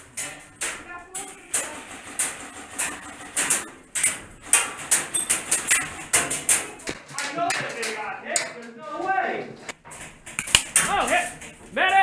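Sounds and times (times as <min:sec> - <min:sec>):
airsoft gun snaps: 0:10.4 - 0:10.8.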